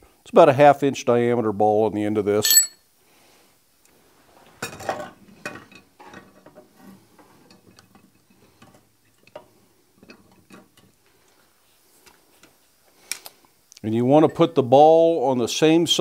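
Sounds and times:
metal tools clinking: 2.4s - 2.8s.

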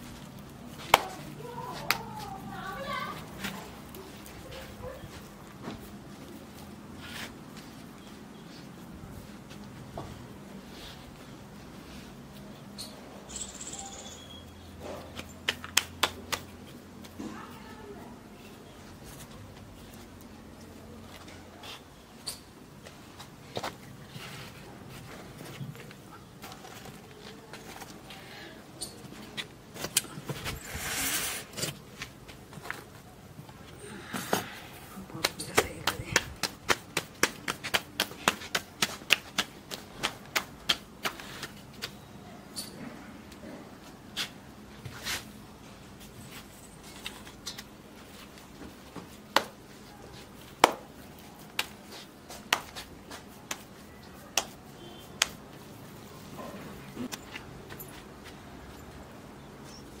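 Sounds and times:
hands slapping dough: 0.7s - 2.4s, 15.1s - 17.2s, 35.2s - 42.0s, 48.9s - 55.7s.

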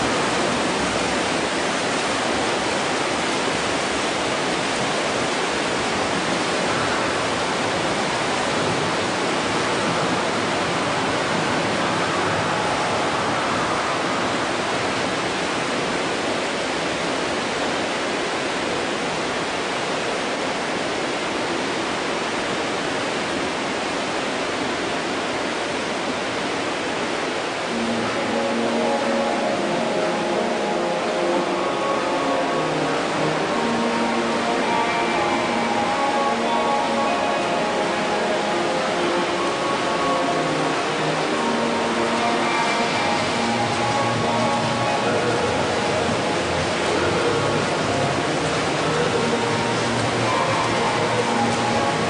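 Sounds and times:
swimmers splashing: 40.0s - 52.0s.

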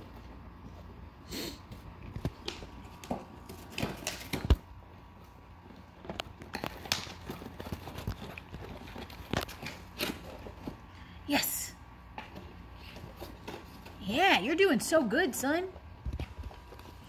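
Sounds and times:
dog tearing cardboard: 6.5s - 10.7s.

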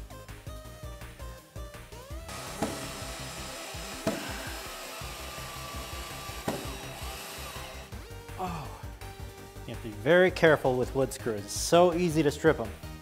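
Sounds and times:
background music: 0.0s - 13.0s
cordless drill running: 2.3s - 8.2s.

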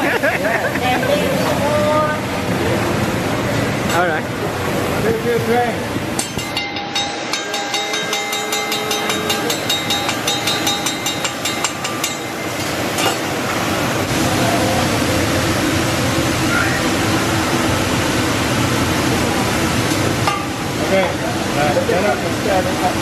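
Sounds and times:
metal spatulas clanking on griddle: 6.2s - 13.3s
vegetables sizzling on grill: 12.4s - 23.0s.

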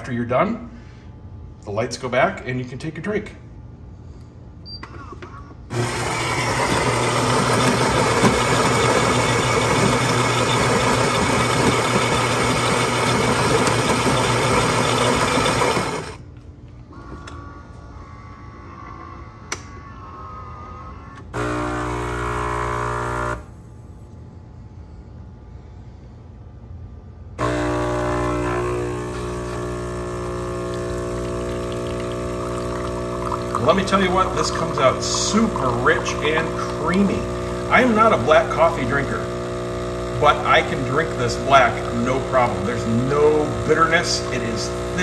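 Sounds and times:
grinder grinding coffee beans: 5.7s - 16.2s, 21.4s - 23.4s, 27.4s - 45.0s
water pump buzzing: 5.7s - 16.2s, 16.9s - 23.5s, 27.4s - 45.0s.

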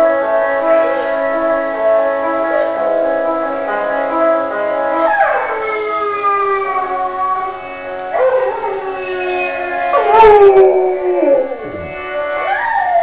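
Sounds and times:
music: 0.0s - 13.0s
dog howling: 5.0s - 13.0s.

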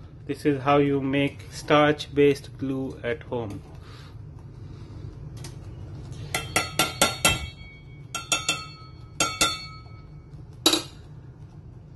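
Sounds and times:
spoon clinking on metal pot: 6.3s - 11.0s.

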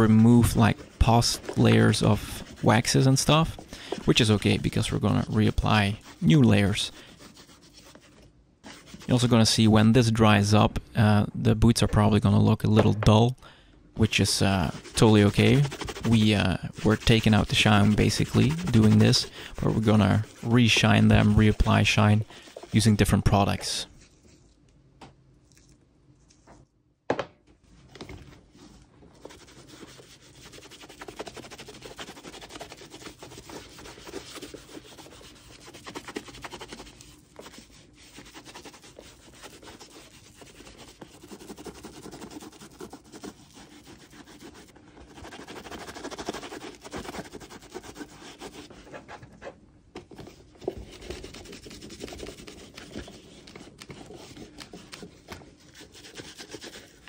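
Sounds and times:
cloth scrubbing leather: 0.0s - 9.6s, 14.1s - 23.2s, 29.2s - 49.1s, 50.8s - 57.0s.

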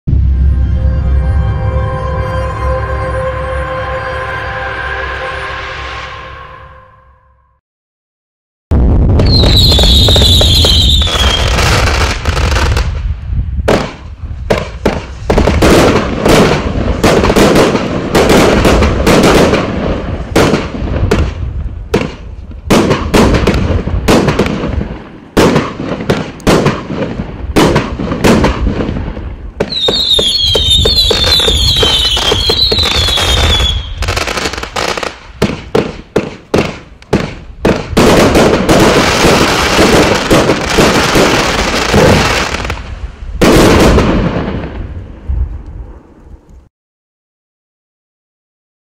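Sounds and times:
firework bursts and crackle: 8.7s - 46.6s
falling whistles: 9.3s - 11.5s, 29.7s - 34.1s.

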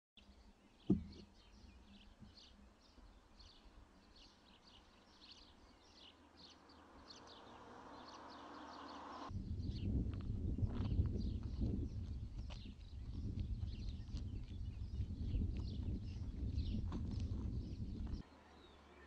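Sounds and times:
small birds chirping: 0.2s - 19.0s
low rumble: 9.3s - 18.2s.

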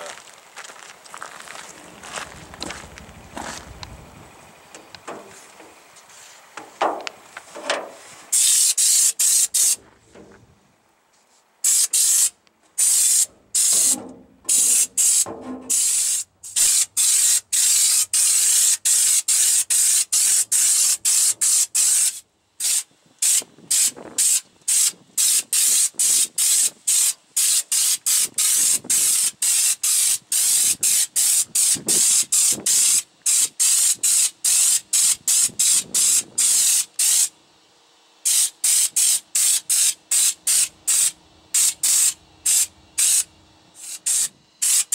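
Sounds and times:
spray gun hissing in bursts: 7.9s - 9.8s, 11.6s - 37.3s, 38.2s - 44.9s.

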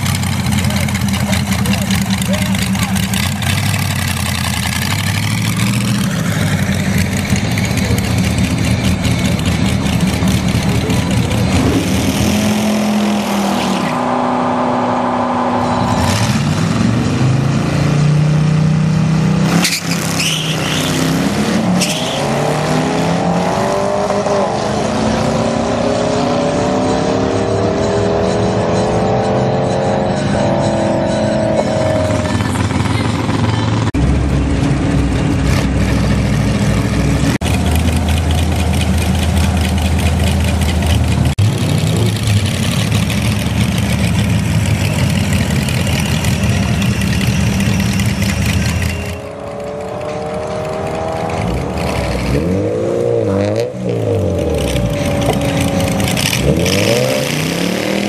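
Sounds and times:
car engine revving: 0.0s - 58.0s
racing engines accelerating: 0.6s - 58.0s.

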